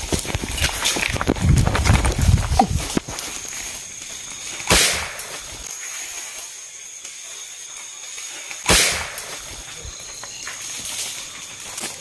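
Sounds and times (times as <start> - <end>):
night insects whining: 0.0 - 12.0
gunshot: 4.7 - 5.3, 8.6 - 9.4.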